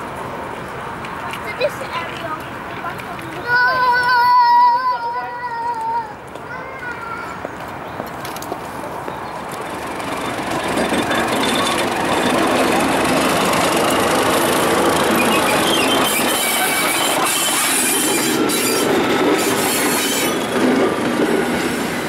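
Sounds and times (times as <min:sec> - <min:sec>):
diesel locomotive engine: 0:00.0 - 0:22.0
wheels squealing on rails: 0:09.4 - 0:22.0.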